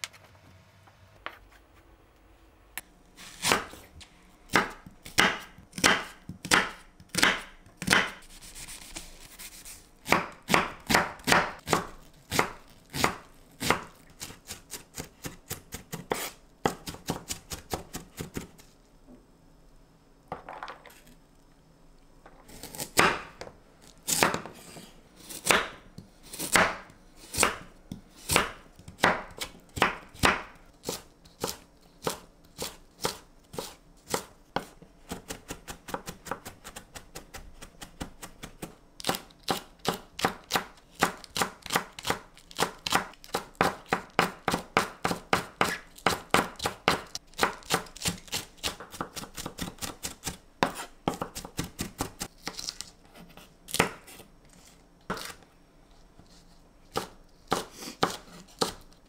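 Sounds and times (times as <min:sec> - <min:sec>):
knife chopping on wooden board: 0:04.5 - 0:08.2, 0:10.0 - 0:18.4, 0:22.6 - 0:23.5, 0:25.4 - 0:25.8, 0:26.4 - 0:52.6, 0:56.9 - 0:58.8.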